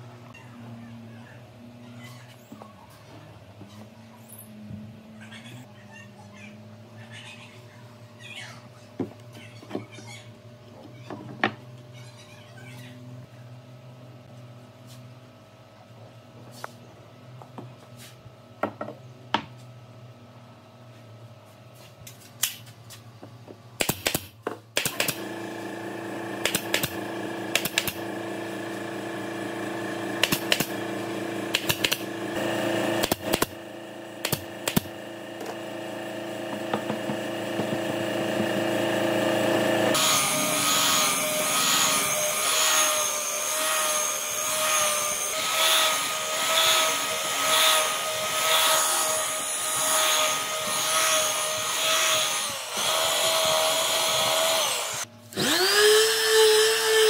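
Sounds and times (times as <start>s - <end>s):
electric power tool running: 24.8s - 57.0s.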